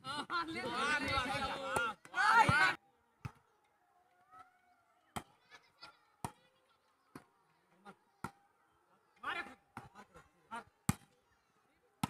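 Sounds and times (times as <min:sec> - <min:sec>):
faint shouts: 0:00.7 - 0:02.8.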